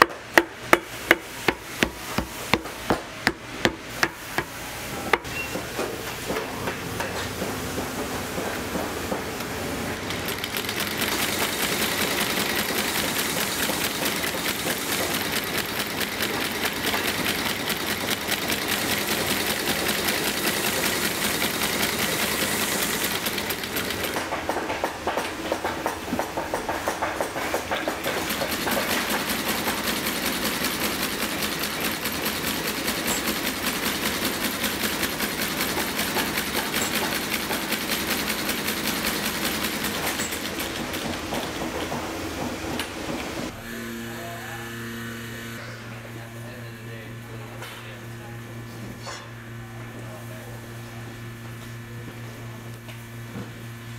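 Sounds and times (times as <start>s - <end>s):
sewing machine stitching: 9.9s - 24.3s, 28.0s - 41.4s.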